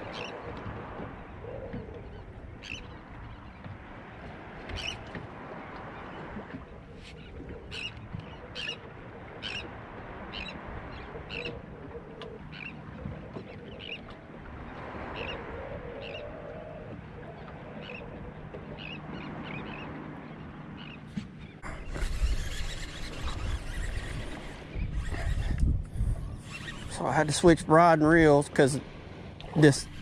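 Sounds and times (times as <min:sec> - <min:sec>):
birds calling in high notes: 0:01.2 - 0:03.7, 0:07.2 - 0:08.8, 0:09.4 - 0:11.6, 0:12.2 - 0:12.9, 0:13.5 - 0:16.5, 0:17.2 - 0:25.6, 0:26.3 - 0:27.5.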